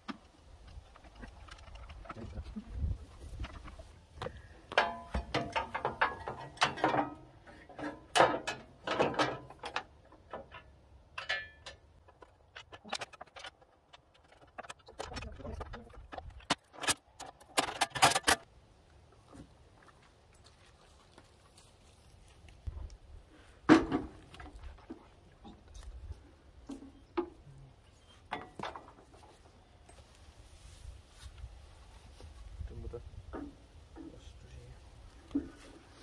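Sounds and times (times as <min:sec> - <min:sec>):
metal parts clinking and clanking: 0:04.7 - 0:18.5.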